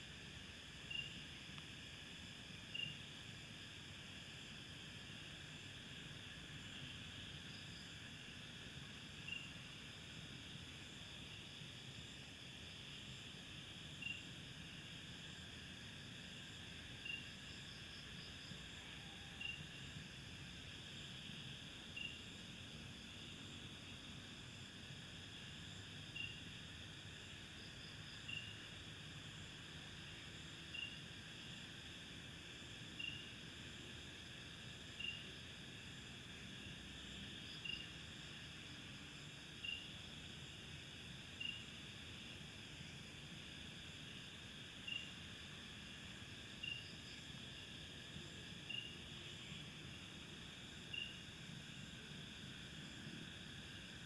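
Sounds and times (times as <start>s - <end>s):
night insects buzzing: 0.0s - 54.0s
short insect chirp: 0.2s - 3.4s, 9.1s - 10.0s, 13.0s - 14.4s, 16.3s - 20.5s, 21.4s - 22.6s, 25.3s - 31.6s, 32.9s - 33.4s, 34.8s - 35.4s, 36.5s - 54.0s.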